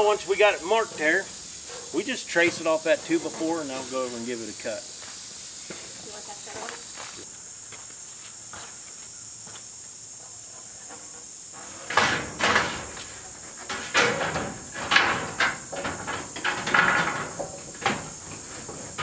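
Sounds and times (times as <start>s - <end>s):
metal panel rattling and scraping: 0.0s - 4.2s, 11.0s - 19.0s
insects chirring: 0.0s - 19.0s.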